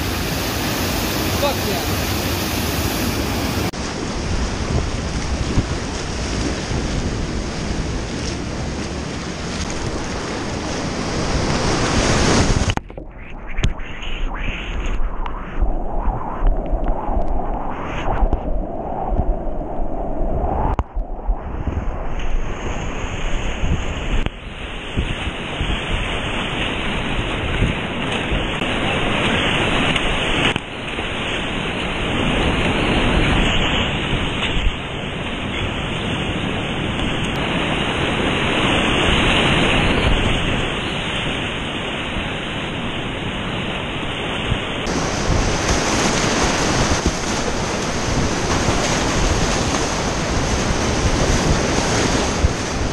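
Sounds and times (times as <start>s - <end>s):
whitewater rapids rushing: 0.0s - 3.7s
waves breaking over boat: 0.0s - 12.8s, 21.5s - 52.9s.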